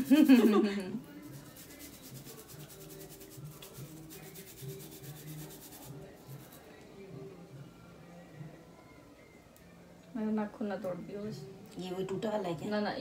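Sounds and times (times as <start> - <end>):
nail file rubbing fingernails: 1.2 - 6.6.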